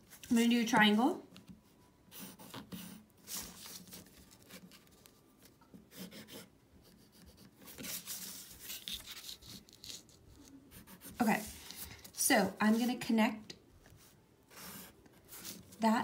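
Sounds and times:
pencil scratching on paper: 0:05.9 - 0:11.8, 0:14.0 - 0:15.8.

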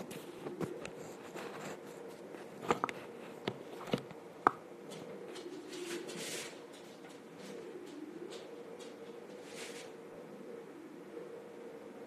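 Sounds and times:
steady low hum: 0:00.0 - 0:12.0
rustle: 0:05.0 - 0:10.0.

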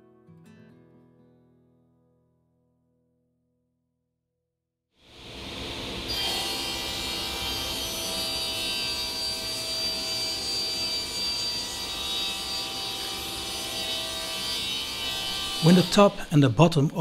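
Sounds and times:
table saw cutting wood: 0:05.1 - 0:17.0.

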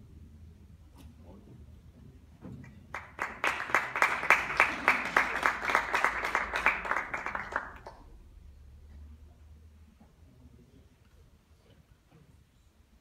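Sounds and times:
small audience applauding: 0:02.6 - 0:08.1.

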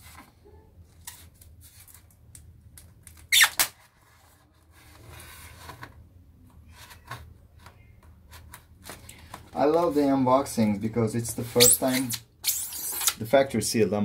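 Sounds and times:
polystyrene lid squeaking: 0:03.3 - 0:03.7, 0:11.5 - 0:13.2
knife scraping polystyrene: 0:11.5 - 0:13.2.

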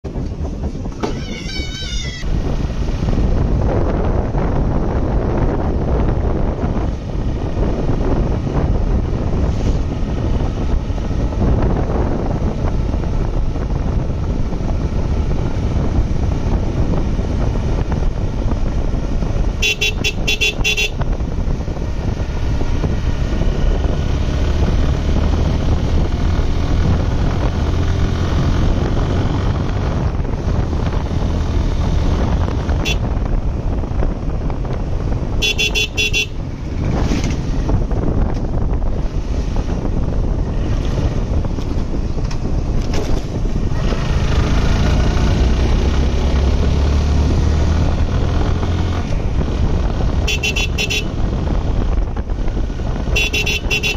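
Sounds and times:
motorcycle engine and road noise: 0:00.0 - 0:53.9
wind buffeting microphone: 0:00.0 - 0:53.9
horn short beeps: 0:35.4 - 0:36.4, 0:50.3 - 0:51.1, 0:53.2 - 0:53.9.

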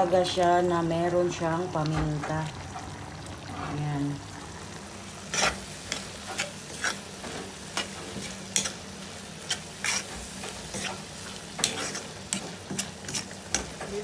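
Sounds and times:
food sizzling: 0:00.0 - 0:14.0
spatula scraping a pan: 0:05.2 - 0:14.0.

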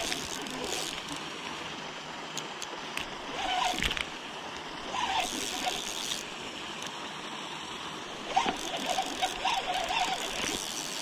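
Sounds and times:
fishing reel cranking: 0:00.0 - 0:01.2, 0:03.3 - 0:04.0, 0:04.8 - 0:06.3, 0:08.3 - 0:11.0
river water rushing: 0:00.0 - 0:11.0.

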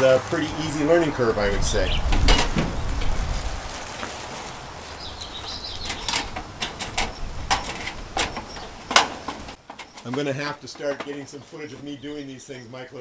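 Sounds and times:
panel clicking and knocking: 0:05.8 - 0:11.3.

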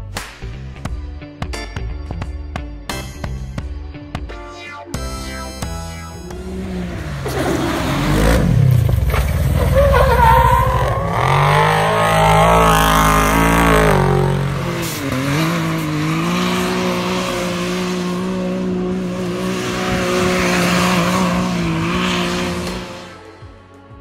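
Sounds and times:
vehicle engine revving: 0:06.0 - 0:23.6.

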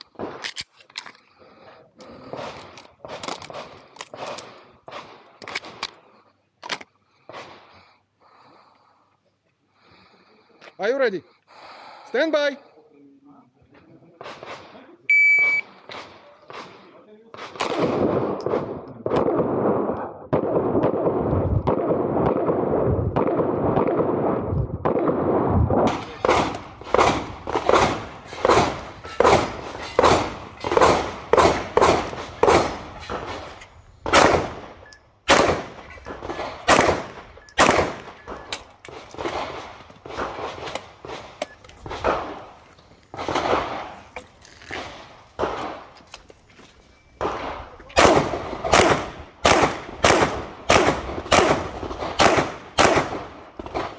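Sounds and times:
pistol shots with echo: 0:15.9 - 0:38.5, 0:47.2 - 0:53.9.

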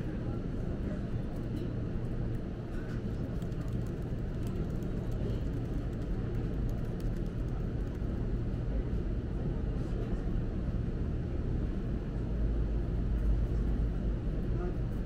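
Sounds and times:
low background rumble: 0:00.0 - 0:15.0
laptop keys typing: 0:03.4 - 0:08.0.

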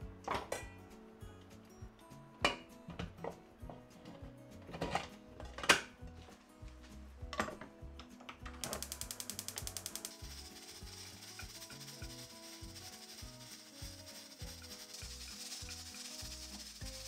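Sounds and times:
soft background music: 0:00.0 - 0:17.0
fast ratcheting clicks: 0:08.6 - 0:17.0
steady hiss: 0:08.6 - 0:17.0.

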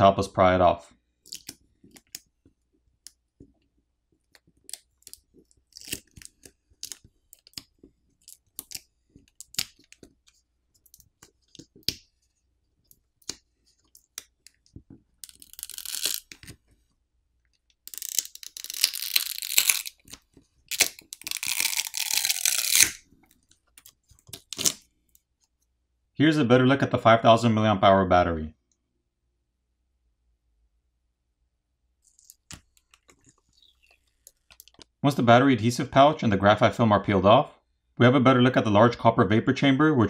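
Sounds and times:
adhesive tearing: 0:04.4 - 0:10.2, 0:15.2 - 0:16.6, 0:17.9 - 0:24.8.

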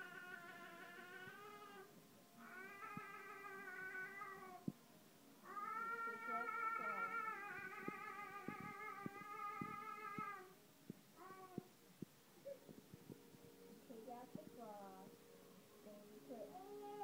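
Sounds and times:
wavering vocal cries: 0:00.0 - 0:04.7, 0:05.4 - 0:10.6.

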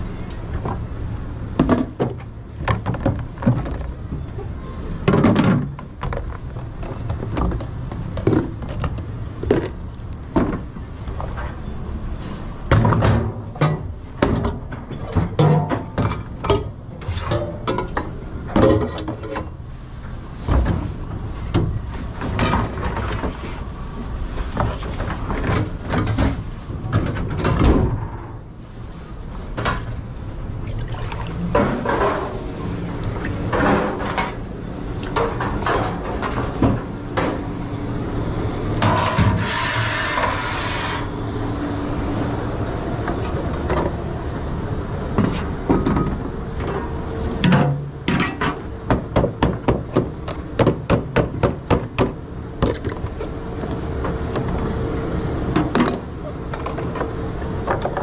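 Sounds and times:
steady low hum: 0:00.0 - 0:58.0
hiss: 0:39.4 - 0:41.1.

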